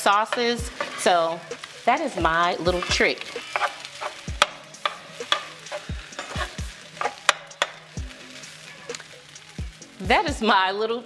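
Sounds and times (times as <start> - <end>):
faint sizzle: 0.0 - 11.0
spoon knocking against pan: 3.5 - 6.4, 7.0 - 7.8.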